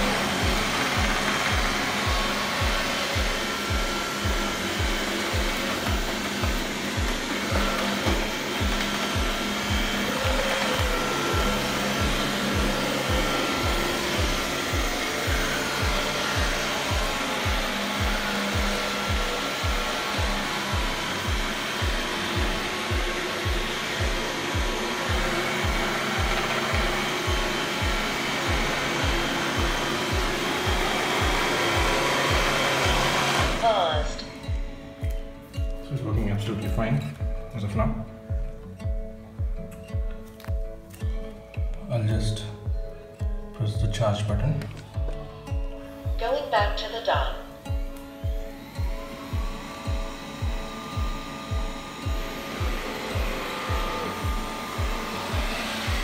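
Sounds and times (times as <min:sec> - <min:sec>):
robot vacuum suction fan: 0:00.0 - 0:34.3, 0:47.5 - 0:56.0
background music with low beat: 0:00.0 - 0:56.0.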